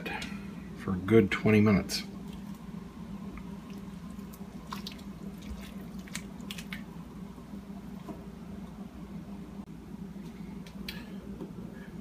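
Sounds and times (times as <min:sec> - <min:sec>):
steady low hum: 0:00.0 - 0:12.0
wet splashes: 0:03.4 - 0:06.9.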